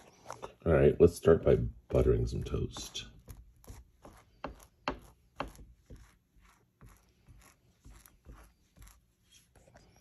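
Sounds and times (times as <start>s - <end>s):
knife scraping butter on bread: 2.4s - 9.4s.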